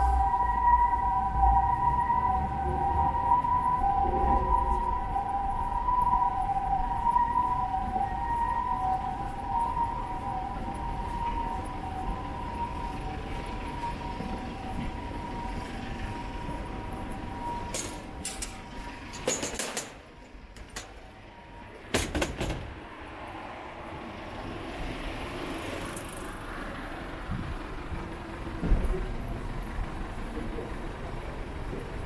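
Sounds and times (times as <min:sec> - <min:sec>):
two-tone siren: 0:00.0 - 0:19.9, 0:20.8 - 0:25.4
street noise: 0:00.0 - 0:32.0.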